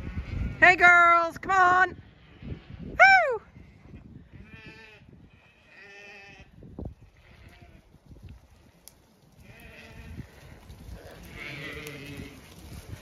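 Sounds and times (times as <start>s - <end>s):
sheep bleating: 4.4s - 6.6s, 7.2s - 7.8s, 9.4s - 10.4s, 11.0s - 12.5s.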